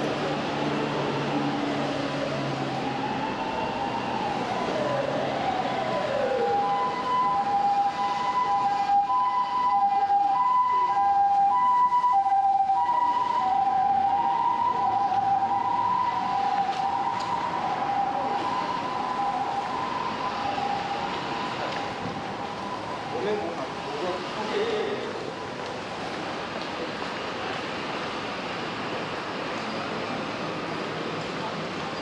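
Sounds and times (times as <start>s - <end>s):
wailing siren: 0.2s - 23.8s
two-tone ambulance siren: 0.2s - 23.9s.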